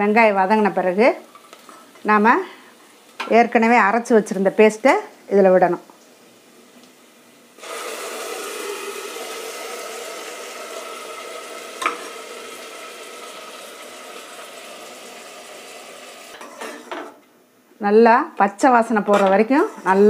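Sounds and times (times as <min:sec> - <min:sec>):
paste sizzling in hot oil: 0:07.6 - 0:16.4.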